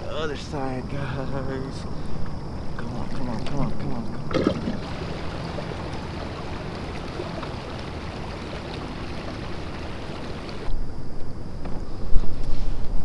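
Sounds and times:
water rushing along kayak hull: 0:01.6 - 0:10.7
wind buffeting microphone: 0:01.6 - 0:10.8.

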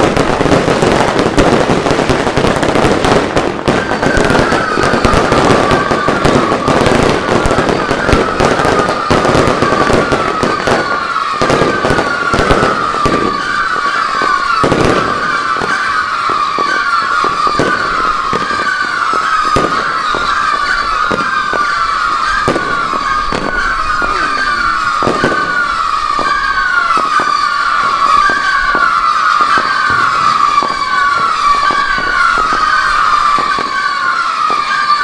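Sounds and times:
descending firework whistles: 0:00.0 - 0:35.0
fireworks crackling and banging: 0:00.0 - 0:35.0.

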